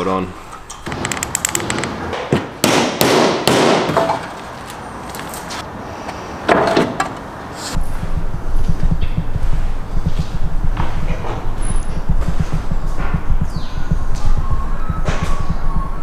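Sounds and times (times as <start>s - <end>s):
background music with low beat: 7.8s - 16.0s.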